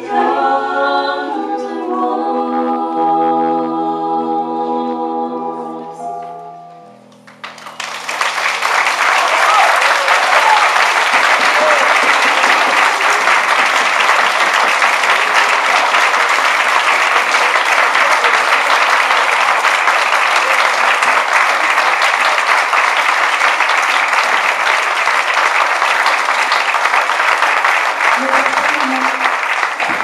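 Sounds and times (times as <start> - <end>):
audience applauding: 7.2 - 30.0.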